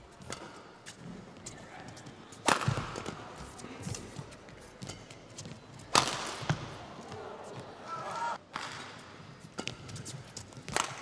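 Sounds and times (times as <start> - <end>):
racket striking shuttlecock: 0.2 - 1.1, 2.4 - 3.2, 4.8 - 6.7, 8.5 - 11.0.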